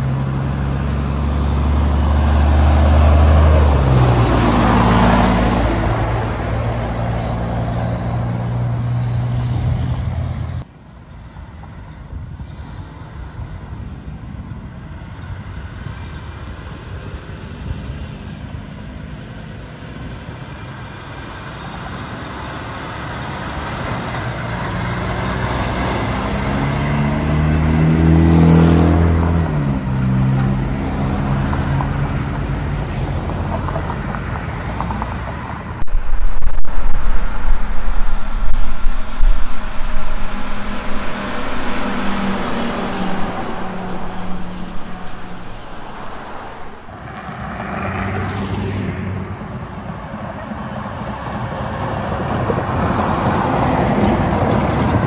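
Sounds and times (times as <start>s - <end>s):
truck passing by: 0.0s - 55.0s
low buffeting rumble: 35.8s - 47.2s.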